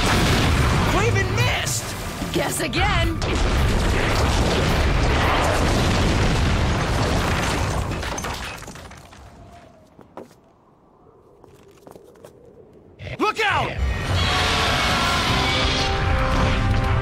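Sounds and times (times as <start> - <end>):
cartoon explosion with low rumble: 0.0 - 1.1, 3.2 - 7.9.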